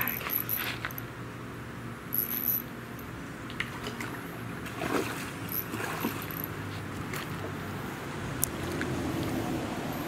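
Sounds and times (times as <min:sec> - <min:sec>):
fishing reel drag buzzing: 0:02.1 - 0:03.1, 0:05.5 - 0:06.6
reel clicks: 0:05.5 - 0:06.6.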